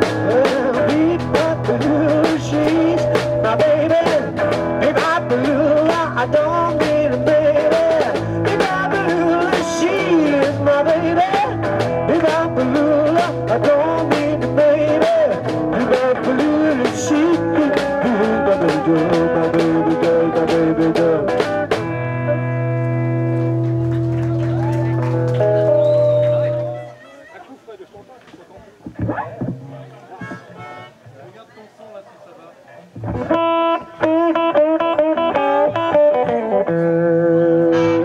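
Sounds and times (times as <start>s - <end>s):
rock and roll band playing: 0.0s - 27.0s, 28.9s - 31.0s, 33.0s - 38.0s
pitch-bending lead melody: 29.0s - 31.1s.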